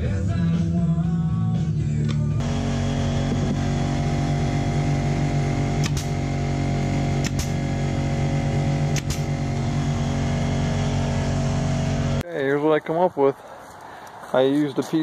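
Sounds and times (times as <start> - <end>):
air compressor humming: 2.4 - 12.2
nail gun snaps: 5.8 - 6.2, 7.2 - 7.6, 8.9 - 9.3.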